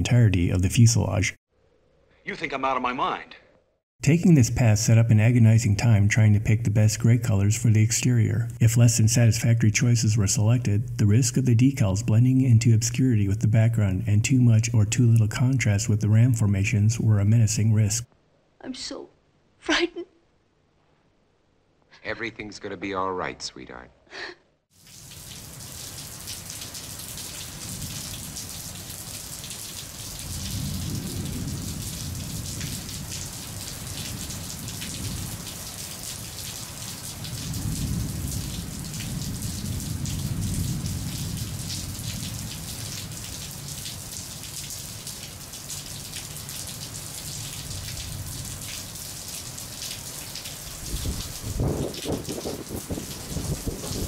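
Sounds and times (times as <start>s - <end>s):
steady rain: 4.1s - 18.1s, 24.8s - 54.0s
thunder rumbling and cracking: 27.5s - 28.5s, 30.0s - 35.6s, 37.1s - 43.2s, 50.7s - 54.0s.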